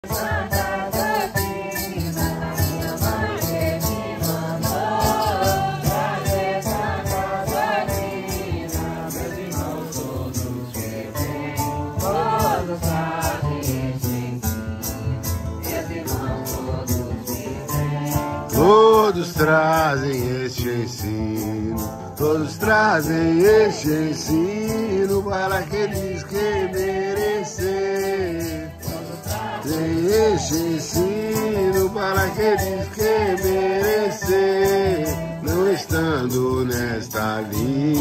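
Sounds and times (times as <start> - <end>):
group singing a hymn: 0.0 - 21.5, 22.2 - 38.0
maracas shaking: 0.0 - 38.0
strummed acoustic guitars: 0.0 - 38.0.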